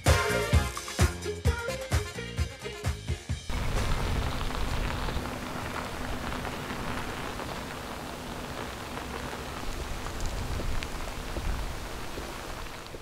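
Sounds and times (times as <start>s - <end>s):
low rumble: 3.5s - 12.1s
fire crackling and hissing: 3.5s - 13.0s
sharp fire pops: 3.5s - 13.0s.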